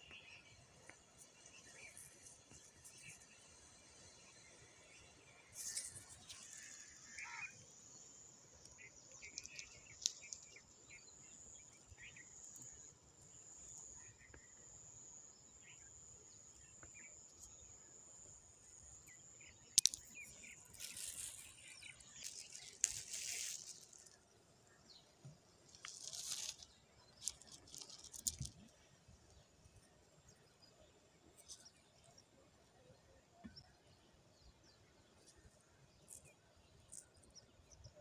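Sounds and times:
pebbles crunching and clacking: 9.2s - 10.6s, 19.7s - 24.2s, 25.7s - 28.7s
high insect buzz: 19.0s - 24.2s, 25.7s - 28.8s.

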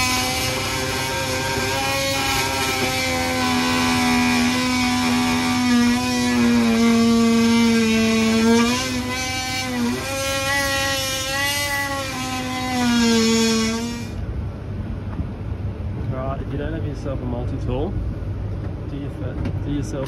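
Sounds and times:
oscillating multi-tool buzzing: 0.0s - 14.2s.

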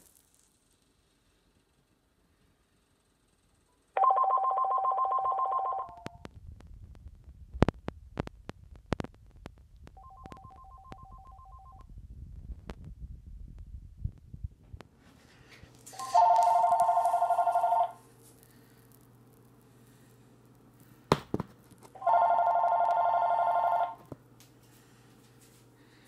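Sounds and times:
phone ringing warbling tones: 4.0s - 6.2s, 10.0s - 11.8s, 16.0s - 18.0s, 22.0s - 24.0s.

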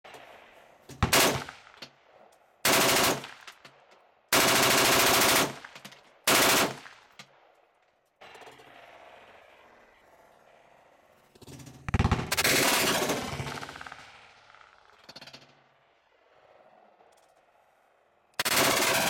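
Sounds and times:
rifle automatic gunfire bursts: 2.6s - 3.4s, 4.3s - 5.7s, 6.3s - 6.9s, 18.4s - 19.0s.

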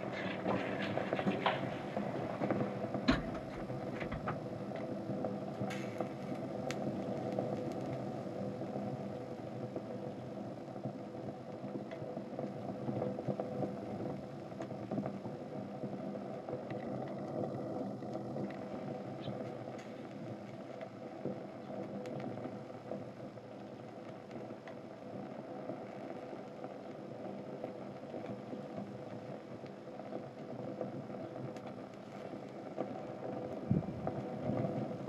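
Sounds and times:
faint crackles of small flames: 0.0s - 35.0s
steady low rumble: 31.9s - 35.0s.

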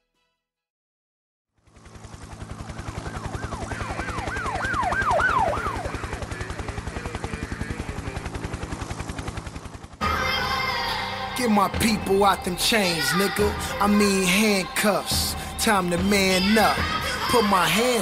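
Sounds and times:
police siren wailing: 2.4s - 8.8s, 10.0s - 18.0s.

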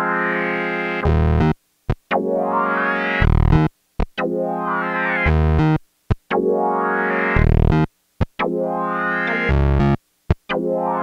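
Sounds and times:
analog synth chords with filter sweep: 0.0s - 11.0s
low synth bass note: 3.2s - 3.6s.

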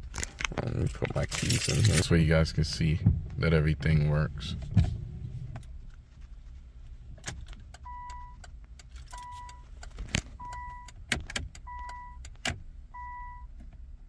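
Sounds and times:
keys clicking and jangling: 0.2s - 2.2s
car warning chime beeping: 7.8s - 8.5s, 9.1s - 9.7s, 10.4s - 11.0s, 11.6s - 12.3s, 12.9s - 13.5s.

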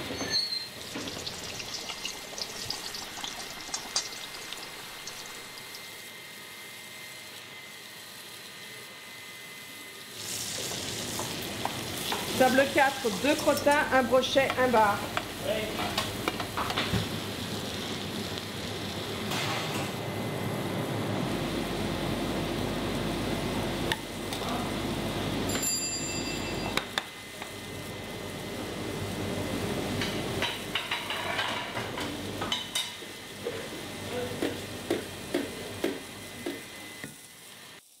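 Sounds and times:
food sizzling while frying: 0.3s - 20.4s, 26.5s - 38.0s
utensils and dishes clattering: 30.4s - 33.0s.

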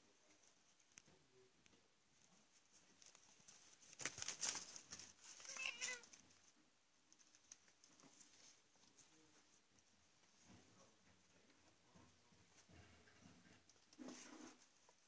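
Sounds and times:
rustling and scratching in cardboard: 2.3s - 6.6s, 7.2s - 9.6s, 10.2s - 15.0s
kitten meowing: 5.5s - 6.0s.

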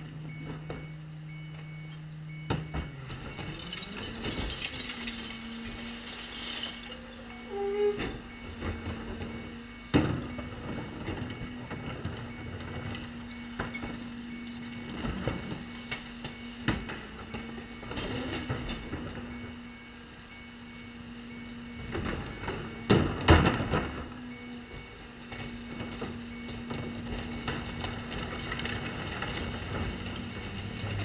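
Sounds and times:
garbage truck idling: 0.0s - 31.0s
trash carts banging on hopper: 21.8s - 24.2s, 24.8s - 31.0s.

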